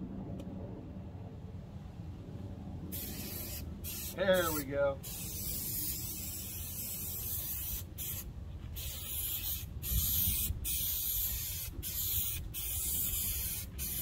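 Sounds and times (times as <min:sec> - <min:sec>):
aerosol spray can hissing: 0:03.0 - 0:14.0.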